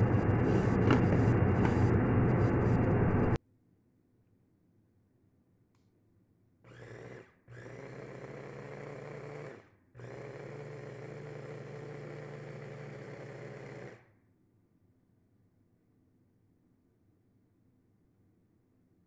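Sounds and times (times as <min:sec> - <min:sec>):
food chopper motor whine: 0:00.0 - 0:03.4, 0:06.7 - 0:14.0.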